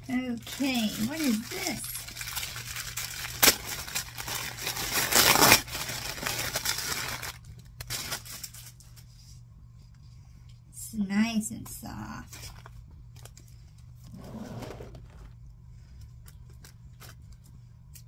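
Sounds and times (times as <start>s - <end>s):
plastic bag crinkling: 0.0s - 9.0s
plastic bag snap: 3.2s - 4.4s.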